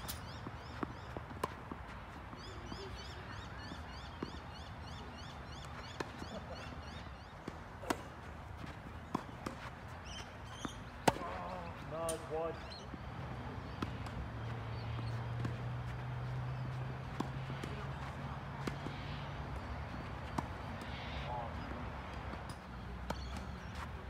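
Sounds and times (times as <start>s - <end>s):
tennis ball hit by rackets: 10.6s - 12.2s.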